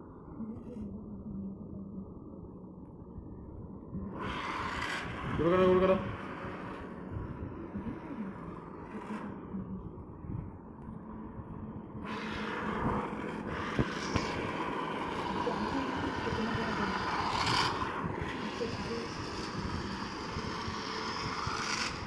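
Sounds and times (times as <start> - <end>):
toy train motor whir: 12.1 - 22.0.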